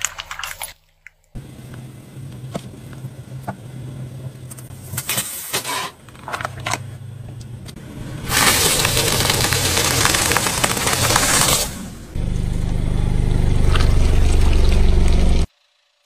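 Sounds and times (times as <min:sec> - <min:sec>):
car engine idling: 0:06.1 - 0:16.0
loud dense crackling hiss: 0:08.2 - 0:12.1
plastic bottle crackling: 0:08.3 - 0:11.9.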